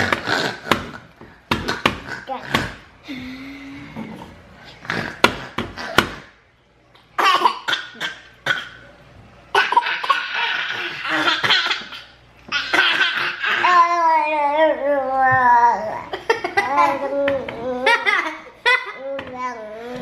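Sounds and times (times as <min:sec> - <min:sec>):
children laughing: 0:09.5 - 0:14.2, 0:16.0 - 0:19.1.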